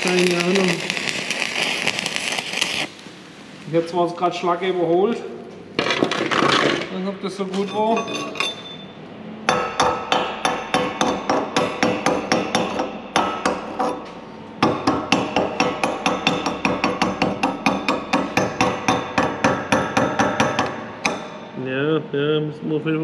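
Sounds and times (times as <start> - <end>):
chipping hammer on metal: 9.5 - 21.5.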